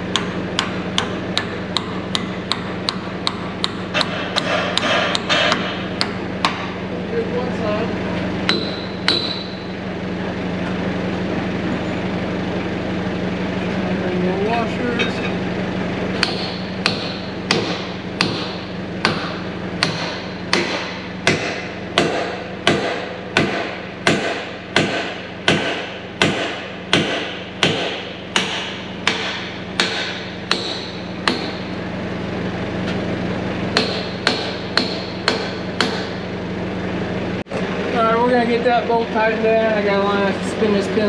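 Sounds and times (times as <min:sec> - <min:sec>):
sledgehammer striking steel: 0:00.1 - 0:06.8, 0:08.5 - 0:09.7, 0:16.2 - 0:31.7, 0:33.7 - 0:36.2.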